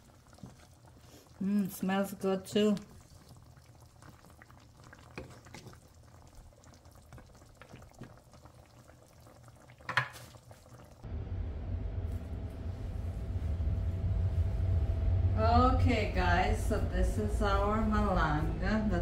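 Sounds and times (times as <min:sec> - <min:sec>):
pot simmering faintly: 0:00.0 - 0:11.1
low rumble with steady hum: 0:11.0 - 0:19.0.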